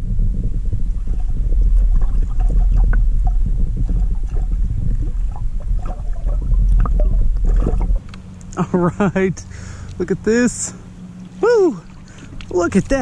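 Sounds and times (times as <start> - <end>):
muffled underwater rumble: 0.0 - 13.0
fish splashing near surface: 1.0 - 8.5.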